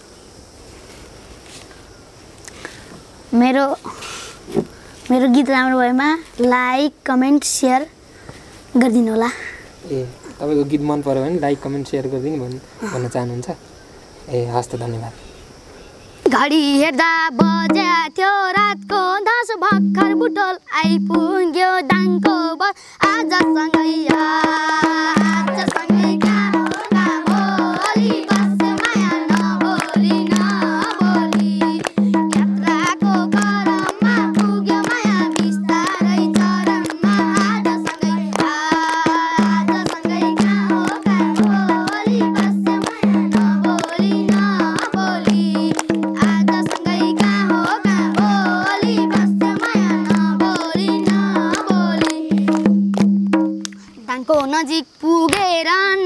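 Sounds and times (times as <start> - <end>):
boy singing folk song: 4.6 - 7.9, 16.2 - 52.7, 53.8 - 56.0
children singing along: 16.7 - 52.8
hand drum rhythm: 17.3 - 19.0, 19.6 - 53.8
children clapping: 24.1 - 53.8.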